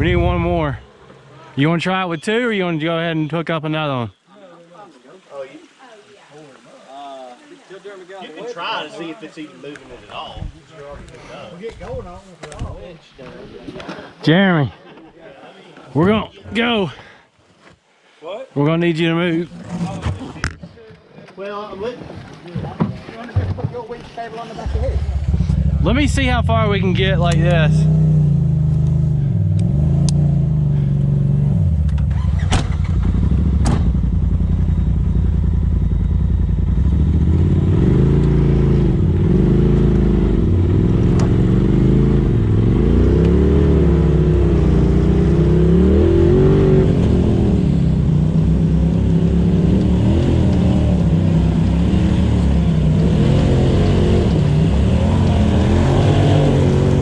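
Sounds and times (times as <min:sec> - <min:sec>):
off-road vehicle engine revving: 0:00.0 - 0:02.4, 0:24.5 - 0:57.0.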